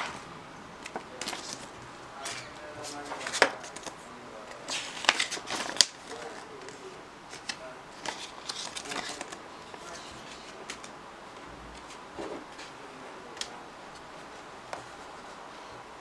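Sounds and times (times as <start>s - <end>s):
paper card rustling: 0.8s - 11.0s, 11.7s - 15.8s.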